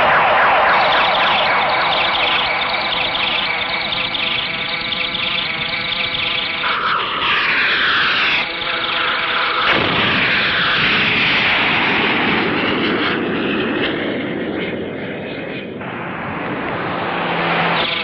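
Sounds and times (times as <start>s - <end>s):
rumbling blasts: 0.0s - 18.0s
explosion blasts: 9.7s - 14.7s.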